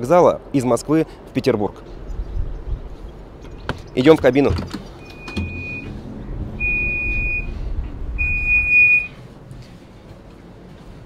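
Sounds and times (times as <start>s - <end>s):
low rumble: 4.9s - 10.1s
electronic warning beeps: 5.0s - 5.9s, 6.6s - 7.5s, 8.2s - 9.2s.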